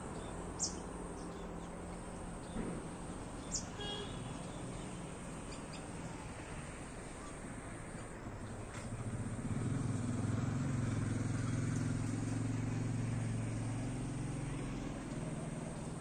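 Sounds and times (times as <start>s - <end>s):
passing vehicle engine drone: 8.2s - 16.0s.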